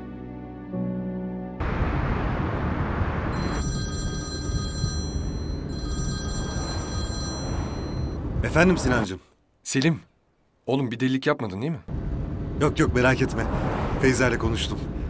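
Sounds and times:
telephone ringing: 3.4s - 8.4s.

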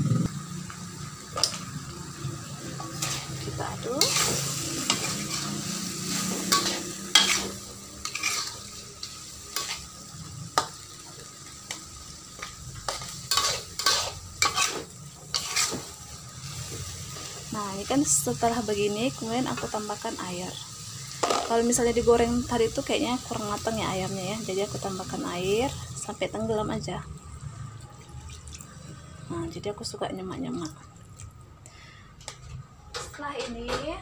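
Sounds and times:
food sizzling: 0.0s - 31.6s
metal spatula scraping a wok: 2.9s - 9.9s, 12.8s - 17.2s.

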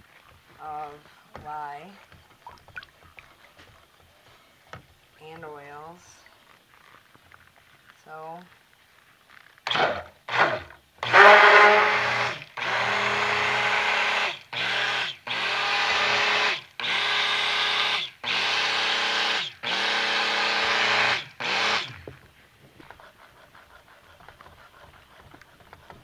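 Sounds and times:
stick blender motor humming: 9.7s - 22.1s.

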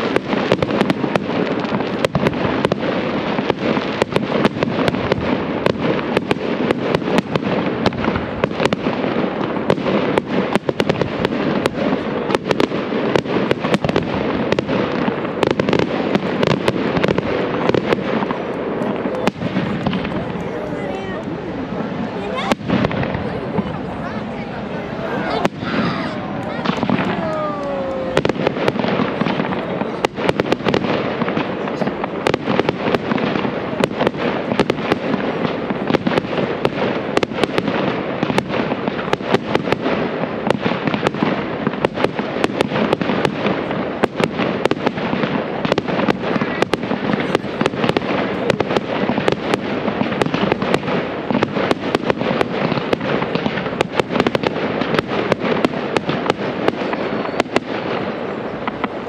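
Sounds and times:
steady noisy background: 0.0s - 39.4s
rapid crackling pops: 0.0s - 59.0s.

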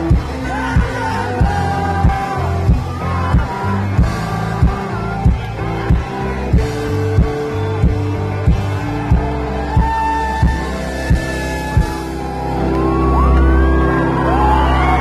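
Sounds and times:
person singing: 0.0s - 12.4s
bass guitar: 0.0s - 15.0s
strummed guitars: 0.0s - 15.0s
kick drum beat: 0.1s - 12.0s.

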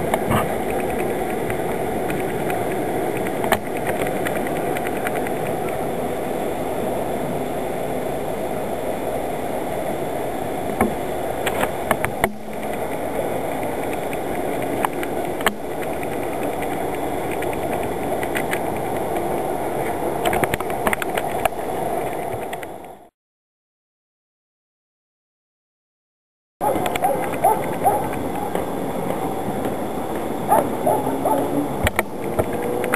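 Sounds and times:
train rumbling on track: 0.0s - 23.1s, 26.6s - 32.9s
sharp clicks and knocks: 13.6s - 23.0s, 31.8s - 32.9s.

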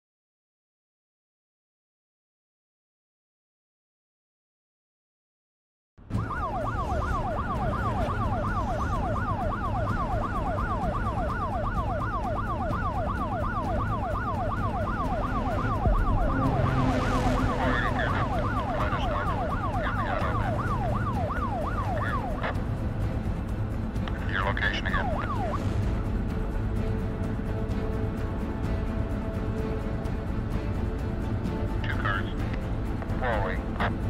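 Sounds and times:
yelp vehicle siren: 6.1s - 22.6s, 24.2s - 25.7s
low rumble of vehicle engines: 6.1s - 34.0s
rush of noise: 15.1s - 20.8s.

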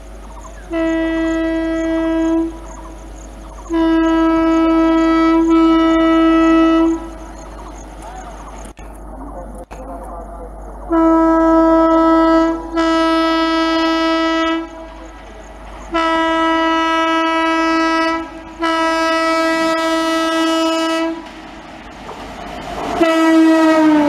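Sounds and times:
train running noise: 0.0s - 24.0s
locomotive horn blasts: 0.7s - 2.6s, 3.7s - 7.2s, 10.9s - 15.0s, 15.9s - 21.3s, 23.0s - 24.0s.

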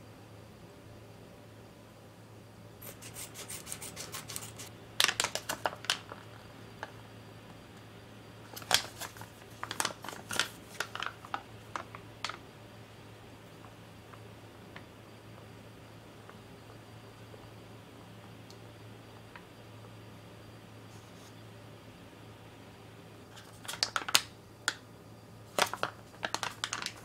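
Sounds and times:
foil pouch crinkling: 2.8s - 6.3s, 8.5s - 12.4s, 23.3s - 24.3s, 25.5s - 27.0s.

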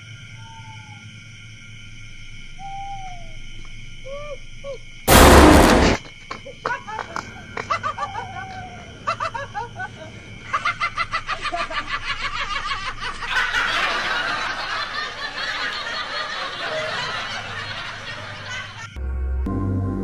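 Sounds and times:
laughter: 6.5s - 19.0s.

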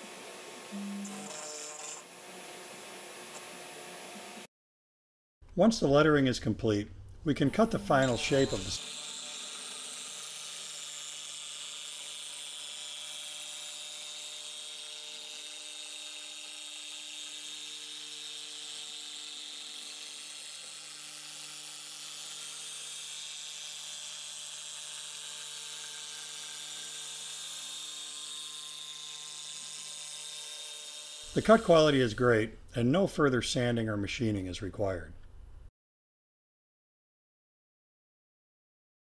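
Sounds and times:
router spindle whine: 0.0s - 4.5s, 7.9s - 31.4s
hiss of bit cutting plastic: 7.9s - 11.8s.

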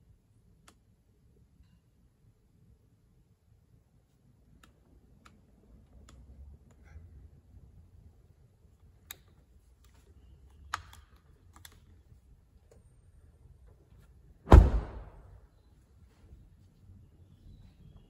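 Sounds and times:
car door shutting thud: 14.5s - 15.2s.

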